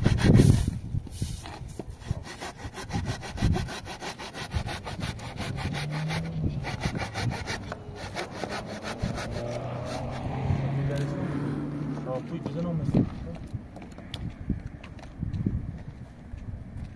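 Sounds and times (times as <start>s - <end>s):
hand saw cutting wood: 0.0s - 10.4s.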